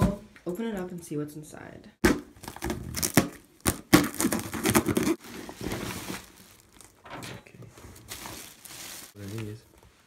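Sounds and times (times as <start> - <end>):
tape and cardboard tearing: 2.0 - 6.3
knife slitting packing tape: 2.4 - 5.2
plastic bag rustling: 5.0 - 10.0.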